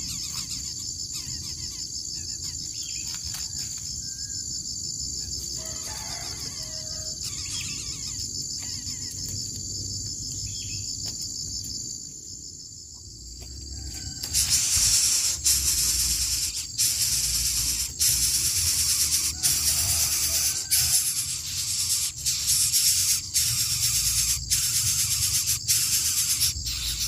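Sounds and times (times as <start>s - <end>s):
high insect buzz: 0.0s - 27.0s
rough rustling hiss: 14.3s - 22.7s.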